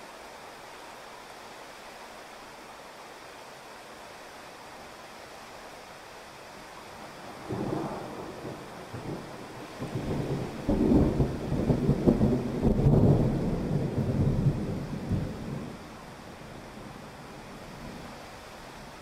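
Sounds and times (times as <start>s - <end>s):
heavy rain: 0.0s - 19.0s
thunder rumbling: 7.2s - 15.9s.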